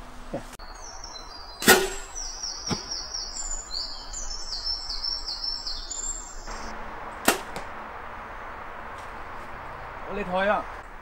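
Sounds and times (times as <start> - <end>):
songbird singing: 0.3 - 11.0
bow shot snap: 1.6 - 3.0, 7.2 - 7.7.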